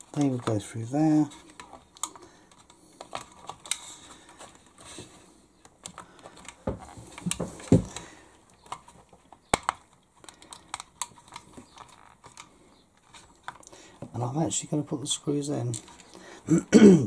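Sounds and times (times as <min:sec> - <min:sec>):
small clicks of plastic parts: 0:01.3 - 0:04.9, 0:05.6 - 0:14.1, 0:15.6 - 0:16.2.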